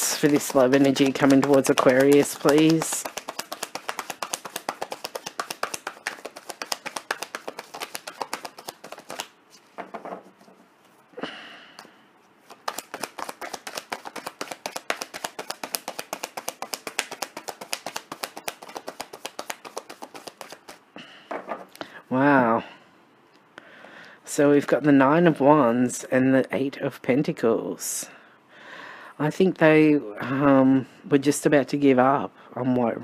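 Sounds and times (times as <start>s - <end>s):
cards being shuffled: 0.0s - 10.6s, 12.4s - 21.6s.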